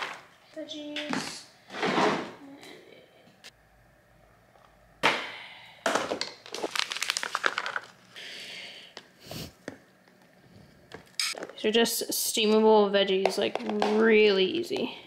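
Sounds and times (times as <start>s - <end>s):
plastic pouch crinkling: 6.3s - 8.2s.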